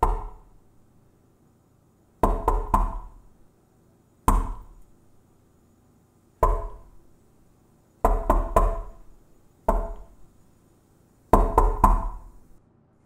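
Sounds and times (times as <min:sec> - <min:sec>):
knocking on a door: 0:00.0 - 0:00.4, 0:02.2 - 0:03.2, 0:04.3 - 0:04.7, 0:06.4 - 0:06.9, 0:08.0 - 0:09.0, 0:09.7 - 0:10.1, 0:11.3 - 0:12.4.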